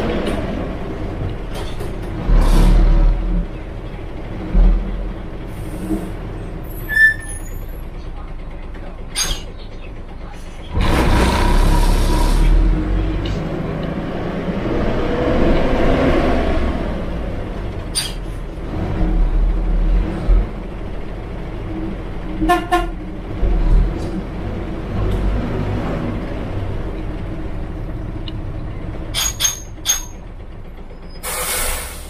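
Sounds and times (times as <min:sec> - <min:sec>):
bus engine running: 0:00.0 - 0:32.0
bus horn toots: 0:06.8 - 0:07.7, 0:22.4 - 0:23.1
compressed-air hiss: 0:31.2 - 0:32.0.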